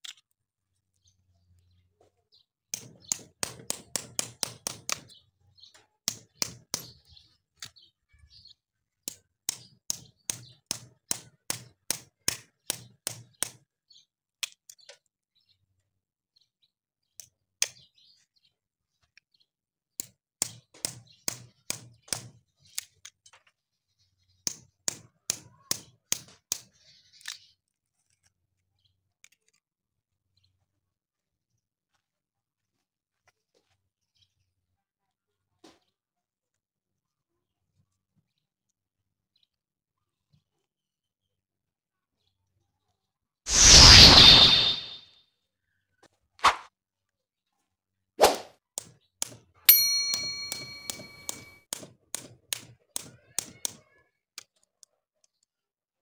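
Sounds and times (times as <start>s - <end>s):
hammer tapping knife: 49.2s - 53.1s.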